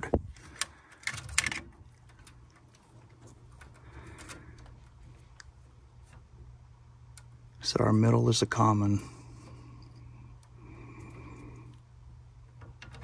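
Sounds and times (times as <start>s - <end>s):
wire connector clicks and rattling: 0.0s - 6.3s
steady low hum: 0.0s - 13.0s.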